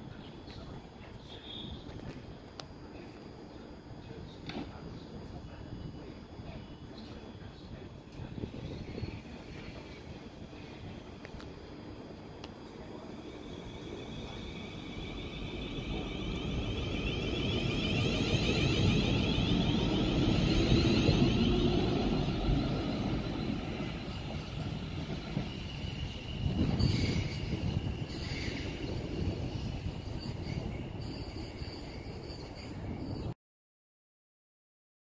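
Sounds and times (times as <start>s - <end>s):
wheels rumbling on rail: 0.2s - 33.3s
electric train traction whine: 4.4s - 33.3s.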